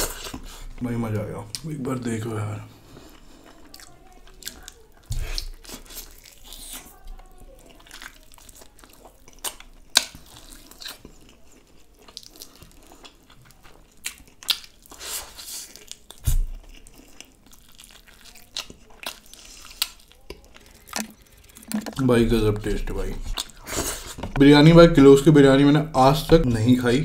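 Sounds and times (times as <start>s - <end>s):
person chewing and smacking: 0.0s - 0.7s, 2.9s - 24.4s
meat tearing: 7.6s - 22.7s.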